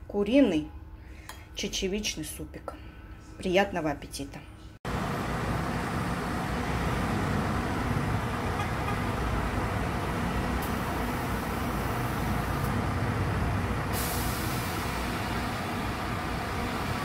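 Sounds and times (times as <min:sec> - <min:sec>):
city street traffic: 0:04.9 - 0:17.0
bright hiss: 0:14.0 - 0:15.4.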